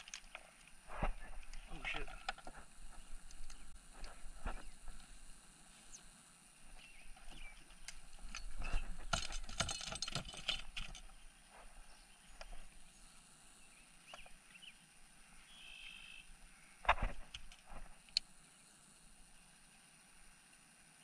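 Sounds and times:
fishing tackle clicking and rattling: 7.8s - 11.2s.

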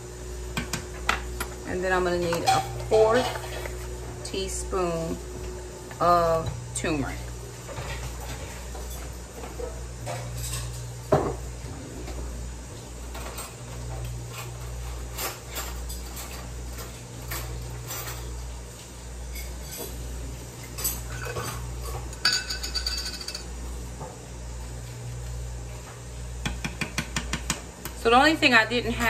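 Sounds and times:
steady low hum: 0.0s - 29.0s
metal spoons clinking: 22.2s - 23.4s.

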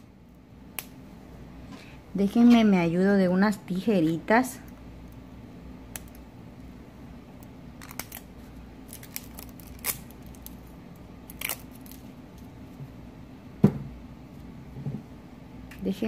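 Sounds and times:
scissors snipping plastic film: 7.4s - 8.3s, 8.9s - 10.6s, 11.3s - 12.0s.

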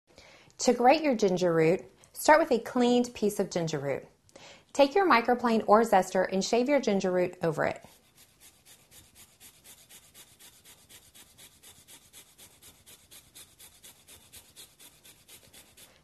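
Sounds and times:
ginger being grated: 7.8s - 16.0s.

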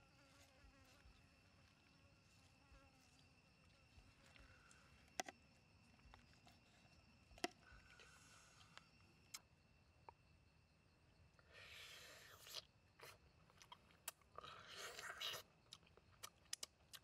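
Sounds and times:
high insect drone: 0.0s - 13.4s.

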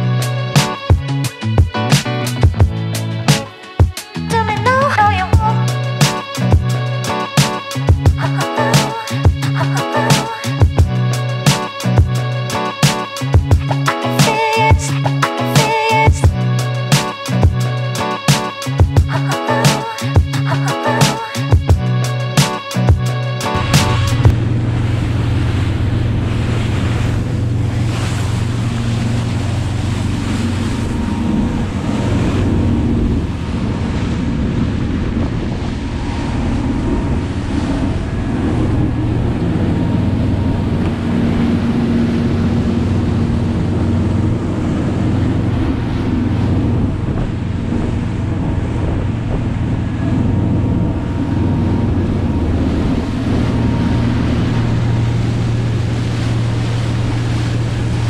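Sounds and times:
motorboat engine hum: 0.0s - 58.0s
water splashing against hull: 0.0s - 58.0s
wind buffeting microphone: 22.8s - 58.0s.

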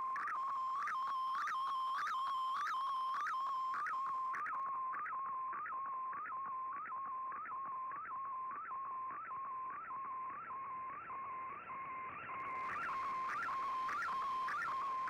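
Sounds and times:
radio tone with upward chirps: 12.4s - 15.0s.

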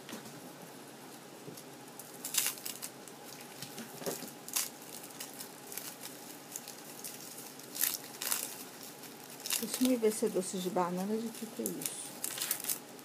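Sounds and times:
straw wrapper crinkling: 1.1s - 13.0s.

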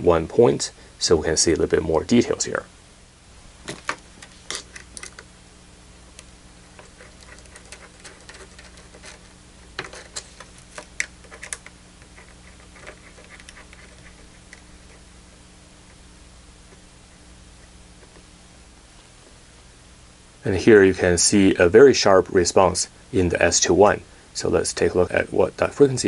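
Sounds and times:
connectors clicking and tapping: 3.7s - 5.3s, 6.1s - 15.0s.

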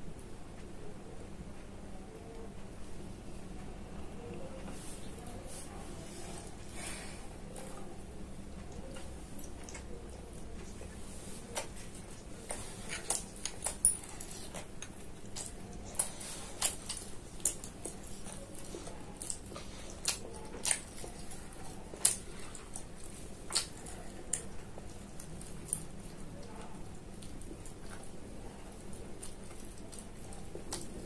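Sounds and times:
chewing clicks: 11.6s - 31.0s.

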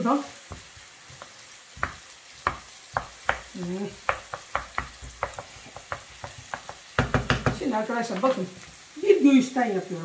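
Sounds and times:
onions sizzling in a pan: 0.0s - 10.0s
wooden spoon knocking on pan: 0.4s - 8.4s.

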